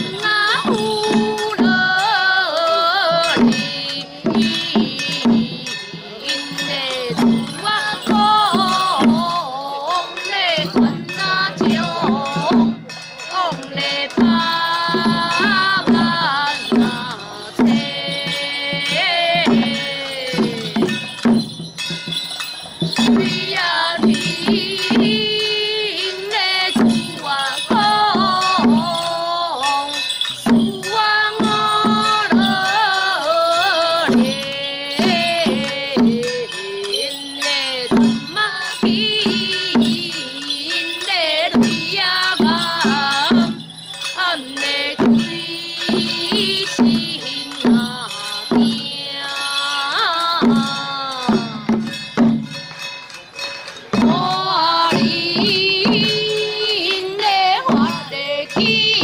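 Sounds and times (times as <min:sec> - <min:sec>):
low drum beat: 0:14.2 - 0:25.8.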